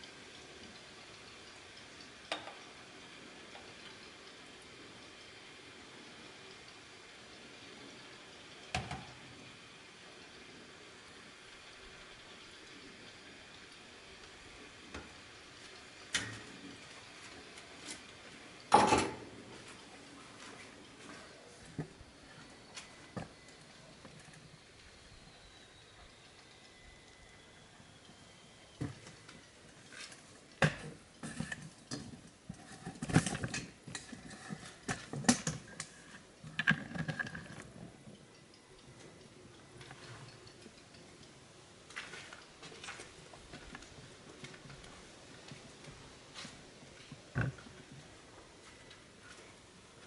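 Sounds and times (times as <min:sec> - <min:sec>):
cups clinking: 0:18.7 - 0:19.7.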